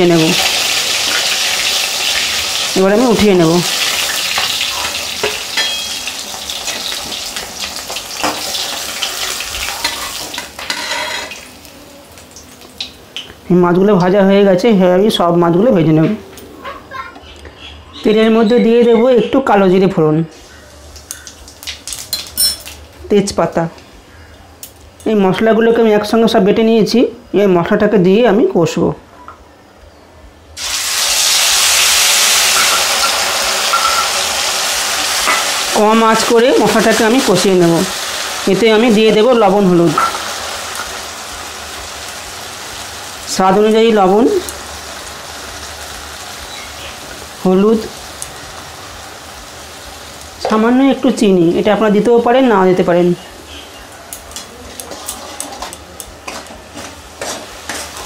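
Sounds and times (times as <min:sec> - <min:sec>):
fish sizzling in hot oil: 0:00.0 - 0:13.3, 0:20.3 - 0:22.8, 0:30.6 - 0:51.2
metal spatula clicks and scrapes: 0:54.2 - 0:58.0.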